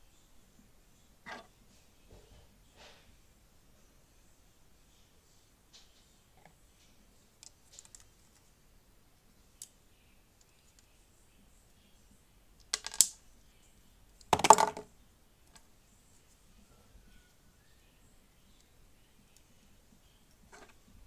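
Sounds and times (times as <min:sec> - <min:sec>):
plastic pieces clicking: 0:12.6 - 0:13.2, 0:14.2 - 0:14.8.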